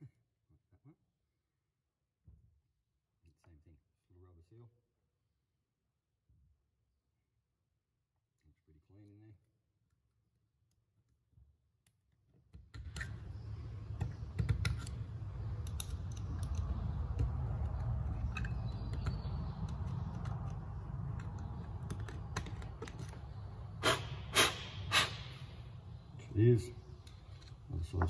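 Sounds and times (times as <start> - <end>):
steady low rumble: 12.9 - 28.0.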